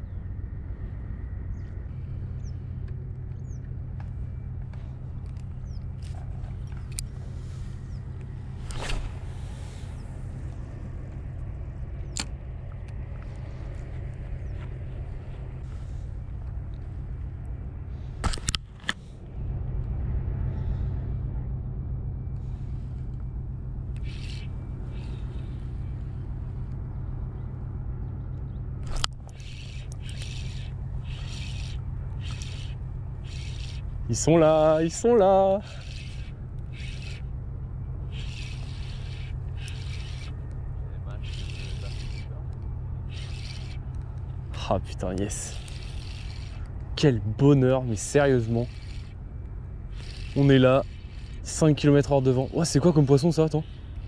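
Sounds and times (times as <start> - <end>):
low rumble: 0.0 - 48.0
small bird chirping: 5.6 - 7.1, 24.0 - 25.9, 28.0 - 34.2, 35.6 - 37.3, 38.1 - 42.4, 43.0 - 44.0
fishing reel clicks: 23.9 - 25.6, 28.8 - 35.0, 35.6 - 37.3, 38.1 - 40.6, 41.2 - 42.3, 43.1 - 44.0, 44.8 - 46.7, 48.0 - 49.2, 49.9 - 54.0
faint clicks: 28.4 - 33.8, 38.1 - 40.6.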